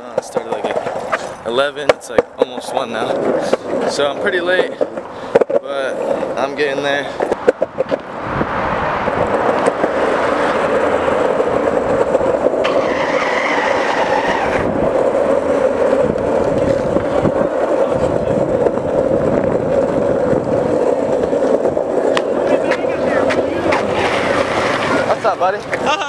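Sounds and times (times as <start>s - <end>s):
skateboard wheels rolling on pavement: 0.0s - 26.0s.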